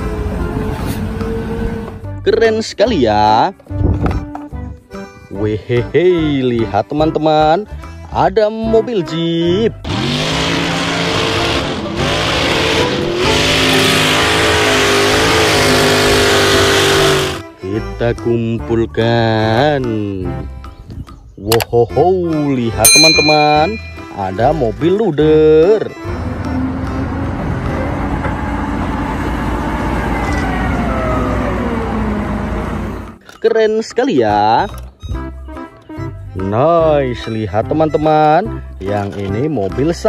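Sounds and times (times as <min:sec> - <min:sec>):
truck engine revving: 0:09.7 - 0:17.6, 0:25.9 - 0:33.2.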